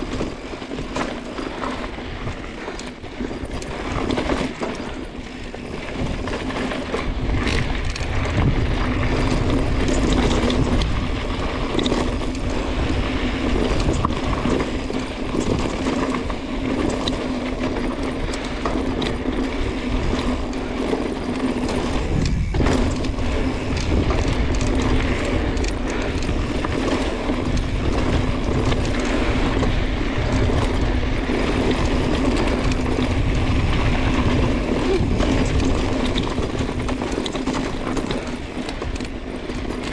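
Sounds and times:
bicycle freehub buzzing: 0:00.0 - 0:39.9
bike rattling over rocks: 0:00.0 - 0:39.9
bike tyre rumble on dirt: 0:00.0 - 0:39.9
wind on microphone: 0:05.3 - 0:16.8, 0:21.6 - 0:37.2.

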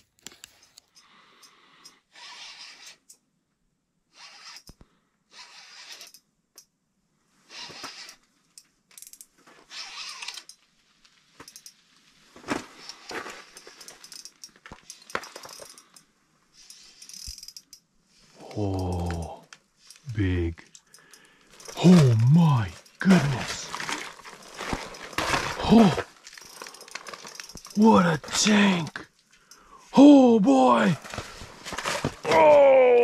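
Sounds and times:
fishing reel ratcheting: 0:02.1 - 0:03.1, 0:04.2 - 0:04.8, 0:05.4 - 0:06.2, 0:08.9 - 0:10.6, 0:13.6 - 0:16.0, 0:16.6 - 0:17.8, 0:26.3 - 0:27.8.

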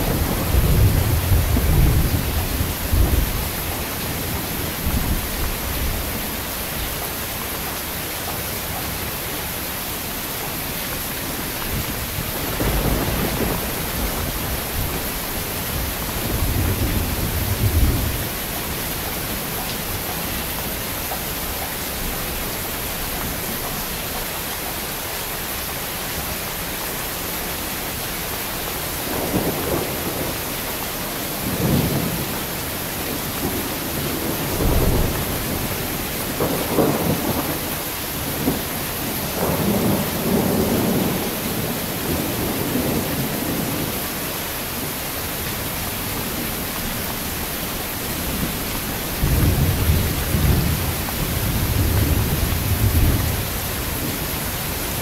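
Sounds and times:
thunder rumbling: 0:00.0 - 0:06.4, 0:11.4 - 0:20.2, 0:29.0 - 0:30.7, 0:31.3 - 0:43.9, 0:46.2 - 0:55.0
heavy rain: 0:00.0 - 0:55.0.

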